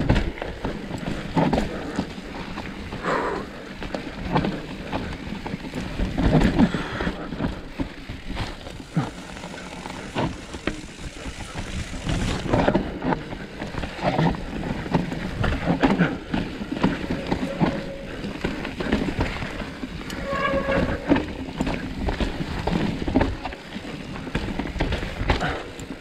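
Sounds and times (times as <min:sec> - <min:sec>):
bike tyres rolling over dirt: 0:00.0 - 0:26.0
chain and frame rattling: 0:08.3 - 0:23.6.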